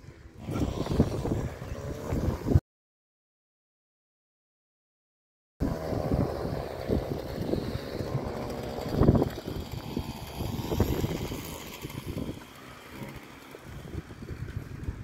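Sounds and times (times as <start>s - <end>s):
wind buffeting microphone: 0.0s - 2.6s, 5.6s - 15.0s.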